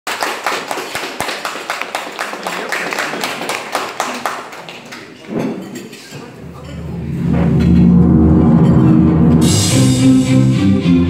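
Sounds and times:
hand clapping: 0.1s - 5.1s.

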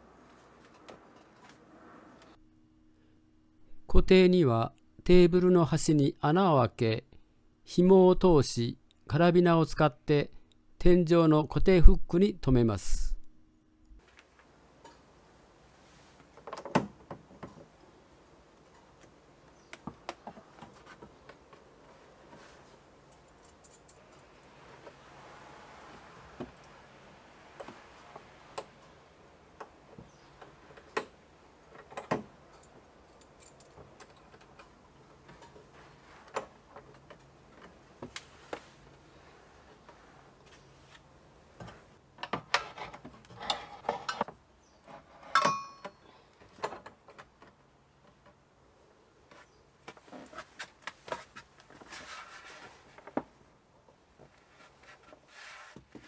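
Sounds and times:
small metal clinks: 23.1s - 24.3s, 32.5s - 34.8s, 45.3s - 46.8s
sharp ringing metal click: 45.4s - 46.0s.

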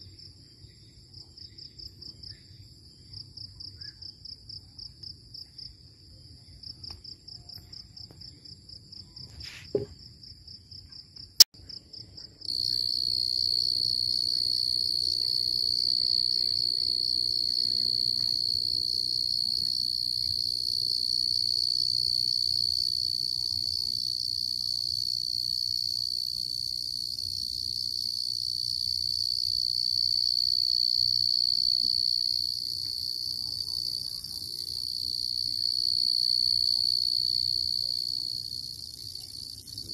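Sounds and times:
crickets chirping: 0.0s - 39.9s
short knock: 9.6s - 10.0s.

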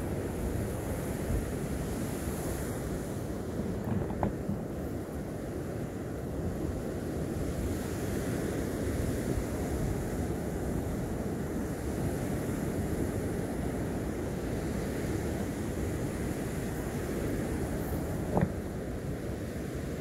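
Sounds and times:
wind noise on microphone: 0.0s - 20.0s.

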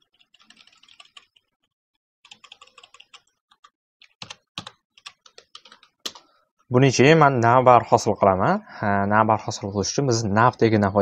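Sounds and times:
typing on computer keyboard: 0.0s - 6.3s.

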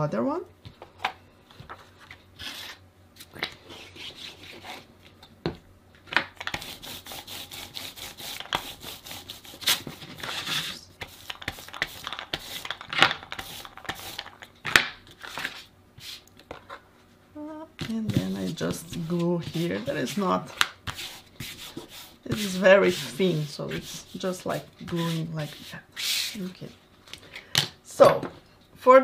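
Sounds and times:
glue brush scratching on paper: 20.9s - 26.4s.

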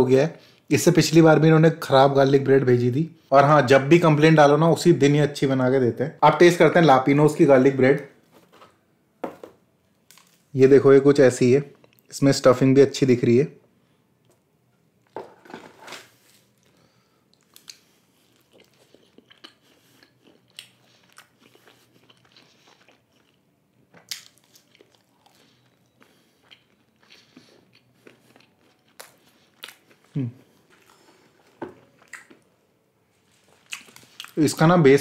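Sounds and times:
chewing crunchy bread: 15.0s - 32.4s, 33.3s - 34.4s.

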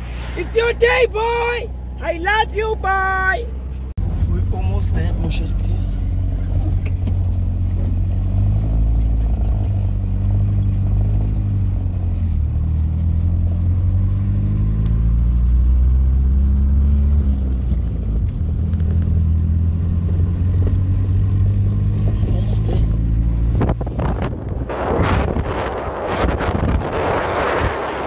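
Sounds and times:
road rumble: 0.0s - 28.0s
car engine from inside cabin: 3.5s - 26.2s.

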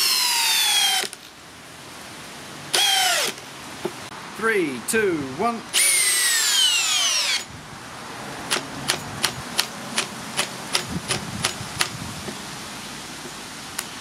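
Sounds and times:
drill sharp clicks: 0.0s - 1.3s, 2.7s - 3.4s, 5.7s - 7.5s
drill motor whine: 5.8s - 7.5s.

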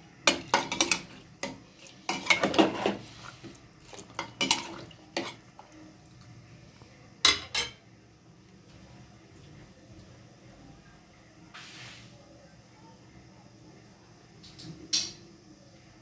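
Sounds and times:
spoon clinking and scraping a bowl: 0.3s - 3.3s.

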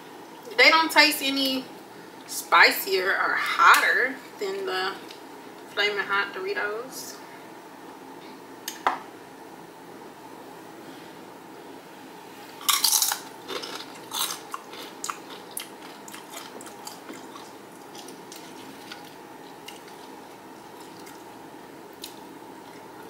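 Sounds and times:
faint hum: 0.0s - 23.0s
chip crunching: 12.6s - 23.0s
crunchy chewing: 12.6s - 23.0s.

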